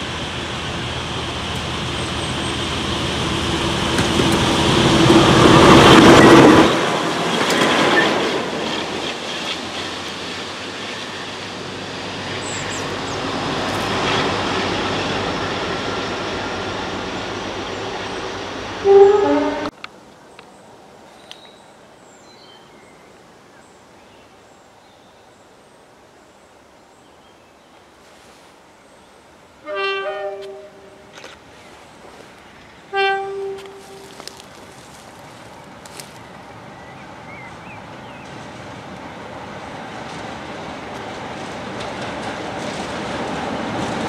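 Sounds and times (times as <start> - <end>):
diesel locomotive engine: 0.0 - 20.0, 29.3 - 44.0
train wheels clattering over rail joints: 3.8 - 11.4, 39.9 - 44.0
train horn blast: 18.8 - 19.7, 29.6 - 31.1, 32.9 - 34.5.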